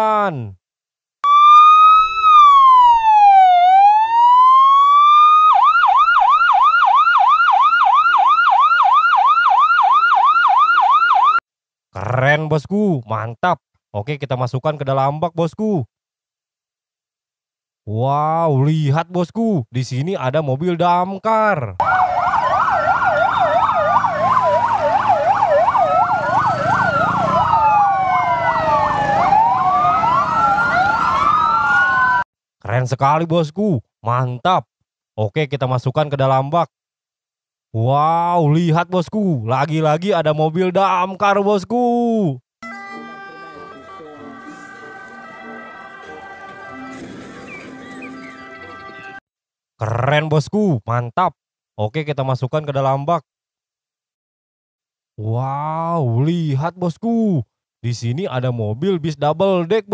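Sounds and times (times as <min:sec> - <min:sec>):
electronic ambulance siren: 0:01.2 - 0:11.4, 0:21.8 - 0:32.2, 0:42.6 - 0:49.2.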